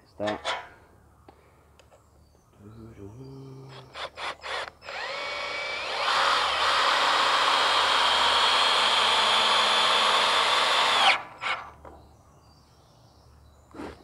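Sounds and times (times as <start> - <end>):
cordless drill driving screw: 3.7 - 11.6.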